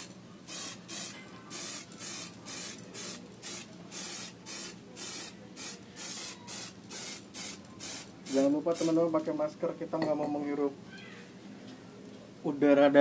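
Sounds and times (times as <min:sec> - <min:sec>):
aerosol spray can hissing: 0:00.0 - 0:09.0.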